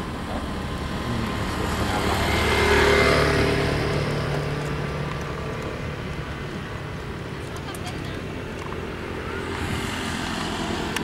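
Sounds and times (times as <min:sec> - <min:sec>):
jet airliner passing overhead: 0:09.0 - 0:11.0.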